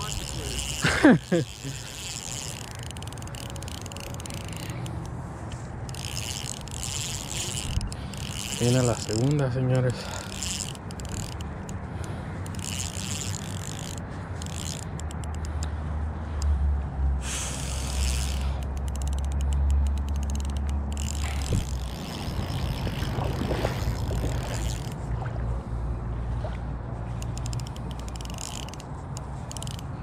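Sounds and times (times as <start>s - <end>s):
fishing reel clicking and whirring: 0.0s - 16.6s, 17.2s - 25.0s, 27.1s - 30.0s
wind rumbling on microphone: 21.1s - 27.2s.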